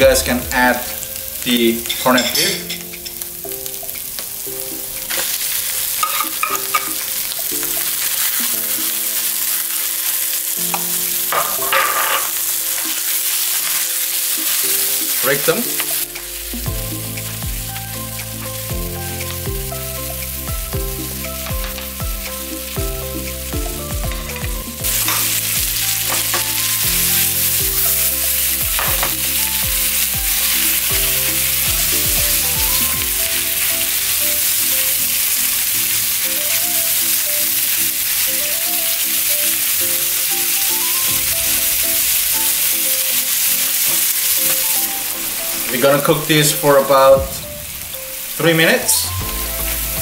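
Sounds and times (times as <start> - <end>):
food sizzling in frying pan: 0.0 - 50.0
utensil scraping pan: 11.3 - 12.4.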